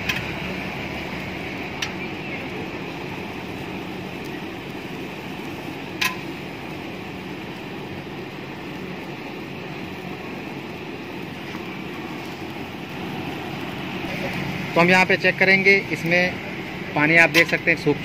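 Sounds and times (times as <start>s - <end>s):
charcoal popping: 0.0s - 16.4s, 17.0s - 17.8s
fan blowing air: 0.0s - 18.0s.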